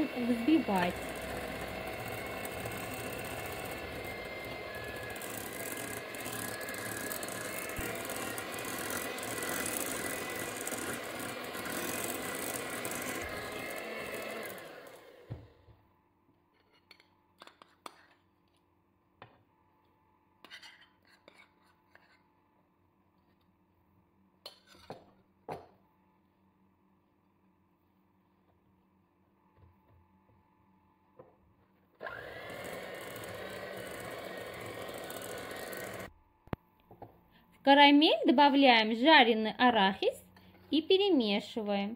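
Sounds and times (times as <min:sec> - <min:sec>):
electric hand mixer whining: 0:00.0 - 0:15.7, 0:32.0 - 0:36.1.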